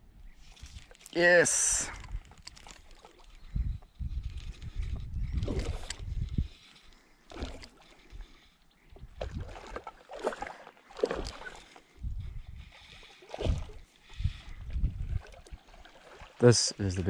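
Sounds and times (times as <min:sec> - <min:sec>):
fish splashing in water: 0:09.2 - 0:11.8.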